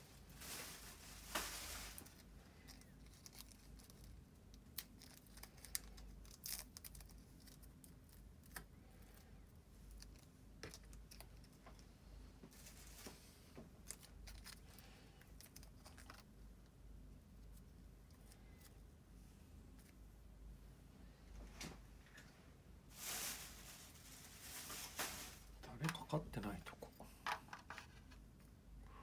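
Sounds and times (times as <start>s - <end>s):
crinkly rustle: 0.1s - 16.3s, 22.9s - 26.8s
plastic sachet tearing: 0.4s - 8.6s.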